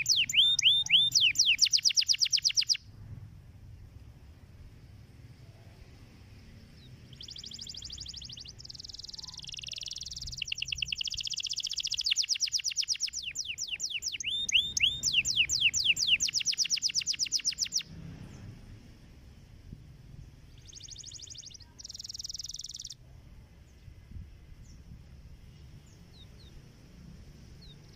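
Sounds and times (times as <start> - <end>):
canary singing trills: 0.0 - 2.9, 6.5 - 18.5, 20.2 - 23.1, 24.6 - 26.8, 27.4 - 27.9.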